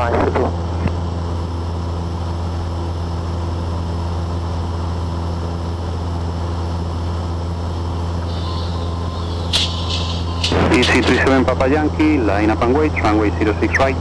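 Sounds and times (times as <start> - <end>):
propeller plane engine droning: 0.0 - 14.0.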